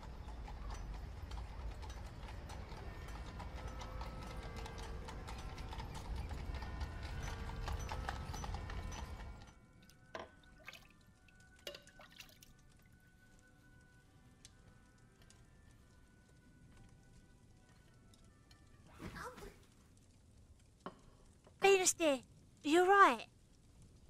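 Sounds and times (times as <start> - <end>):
low street rumble: 0.0 - 9.8
horse hooves clip-clopping: 0.0 - 10.4.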